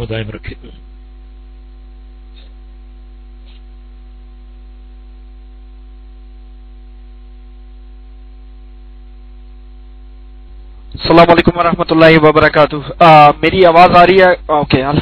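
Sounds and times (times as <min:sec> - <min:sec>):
electrical hum: 0:00.0 - 0:15.0
light hiss: 0:03.4 - 0:03.8.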